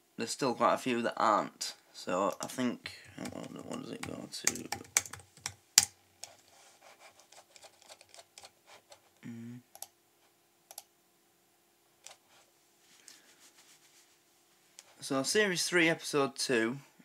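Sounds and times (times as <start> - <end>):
keyboard and mouse clicking: 3.2 - 6.4, 7.3 - 8.5, 10.7 - 10.9
man humming low: 9.2 - 9.8.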